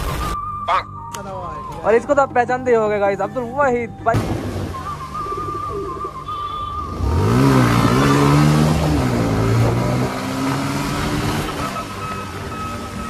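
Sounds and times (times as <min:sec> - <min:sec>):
vehicle engine revving: 0:04.2 - 0:13.0.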